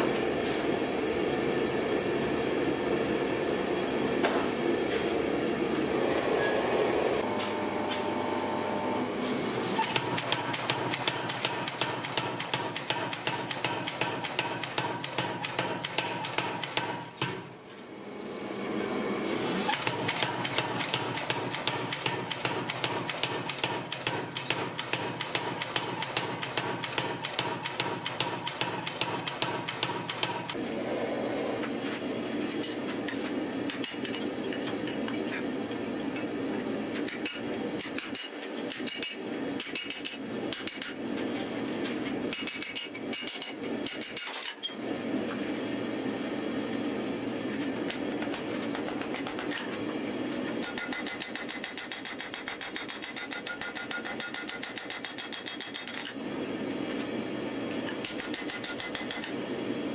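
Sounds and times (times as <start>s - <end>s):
gas forge roaring: 0.0s - 11.0s, 17.8s - 22.8s, 30.5s - 37.8s
power hammer pounding metal: 50.6s - 56.1s, 58.0s - 59.3s.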